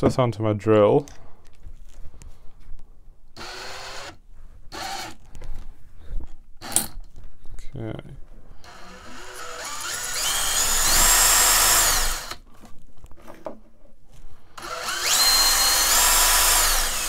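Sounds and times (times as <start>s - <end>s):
electric drill whine: 3.4s - 5.2s, 8.6s - 12.4s, 14.6s - 17.0s.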